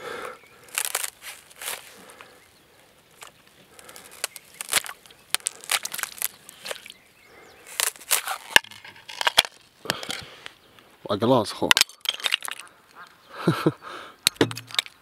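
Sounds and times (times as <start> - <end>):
thin ice cracking and snapping: 0.6 - 2.3, 3.1 - 7.0, 7.7 - 10.3, 11.6 - 12.7, 14.2 - 15.0.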